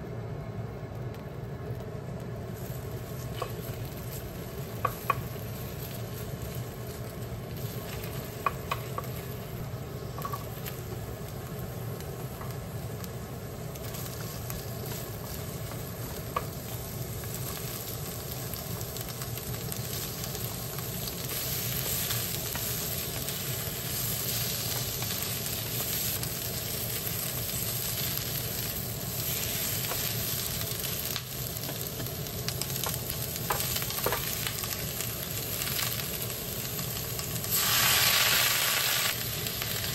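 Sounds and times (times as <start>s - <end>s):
food sizzling in a frying pan: 1.9s - 39.9s
wooden spatula tapping pan: 4.8s - 5.3s, 8.4s - 9.2s.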